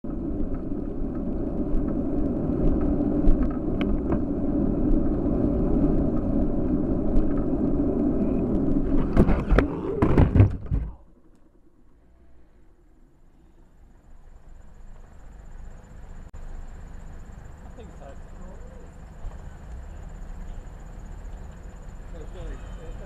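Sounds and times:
tyres on wet road: 0:00.0 - 0:11.0, 0:12.4 - 0:23.0
wind rumble: 0:00.0 - 0:22.4
bike crash knocks and clatter: 0:08.9 - 0:11.0.

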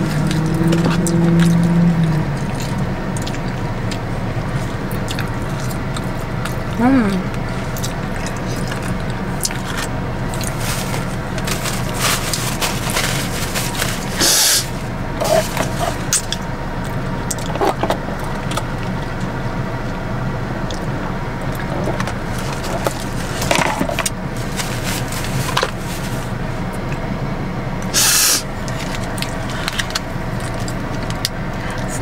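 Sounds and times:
eating sounds: 0:00.0 - 0:19.3
car idling hum: 0:00.0 - 0:32.0
short loud hiss: 0:28.0 - 0:28.4
sip through a drinking straw: 0:28.0 - 0:28.4.

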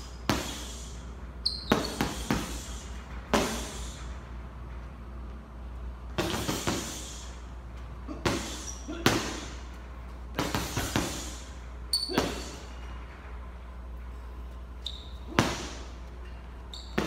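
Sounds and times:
short high squeak: 0:01.4 - 0:02.1, 0:14.8 - 0:15.4, 0:16.7 - 0:17.0.

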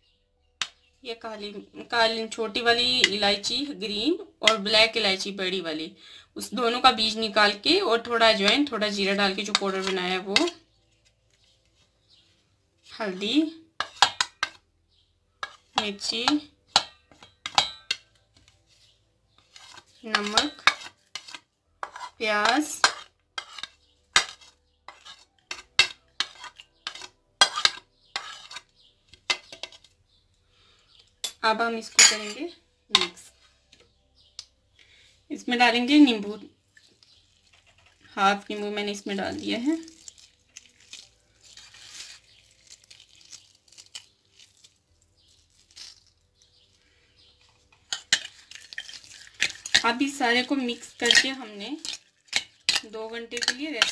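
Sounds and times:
soft rustles of food handling: 0:10.2 - 0:16.7, 0:18.0 - 0:27.2, 0:33.1 - 0:35.3, 0:36.5 - 0:53.9
spoon clinking and scraping on plate: 0:13.8 - 0:14.6, 0:15.4 - 0:29.9, 0:30.9 - 0:33.9, 0:47.4 - 0:50.0, 0:50.9 - 0:53.9.

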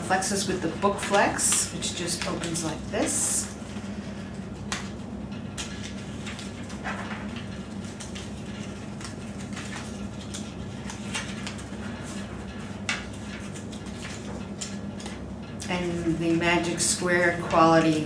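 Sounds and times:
steady low hum: 0:00.0 - 0:18.0
paper rustling: 0:00.2 - 0:18.0
soft paper clicks: 0:05.6 - 0:15.2.

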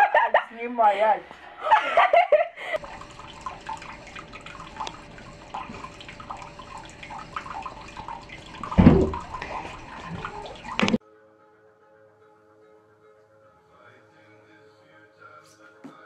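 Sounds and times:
tap running into sink: 0:02.8 - 0:11.0.

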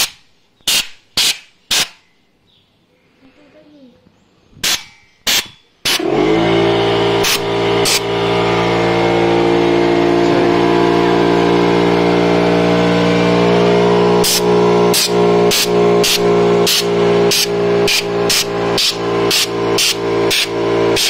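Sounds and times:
compressed air blasts: 0:00.0 - 0:02.1, 0:04.6 - 0:21.0
air compressor motor running: 0:05.3 - 0:21.0.

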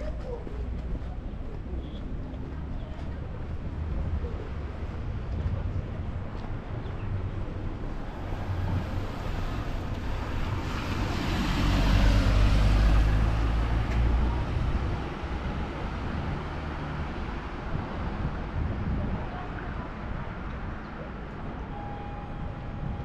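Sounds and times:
low traffic rumble: 0:00.0 - 0:23.0
vehicle passing: 0:08.1 - 0:17.1.

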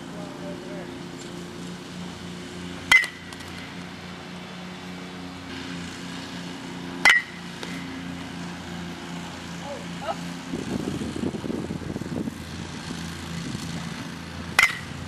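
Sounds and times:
bat cracking ball: 0:02.8 - 0:03.8, 0:07.0 - 0:08.0, 0:14.4 - 0:15.0.

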